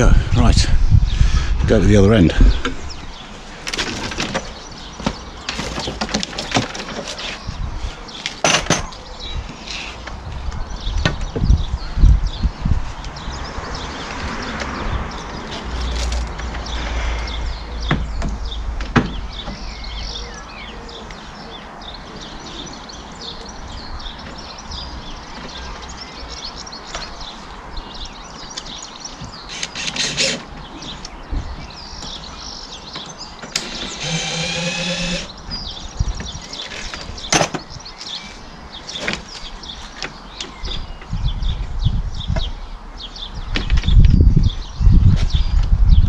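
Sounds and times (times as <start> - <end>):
birds chirping: 0.0 - 46.0
wind rumbling on microphone: 0.0 - 46.0
power drill whirring: 29.5 - 30.4, 33.6 - 35.3.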